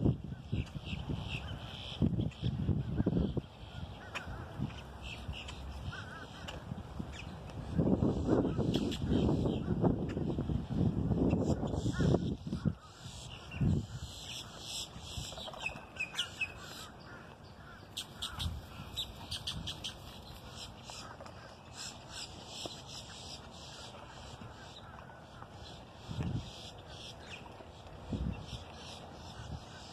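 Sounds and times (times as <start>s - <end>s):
birds chirping: 11.3s - 29.9s.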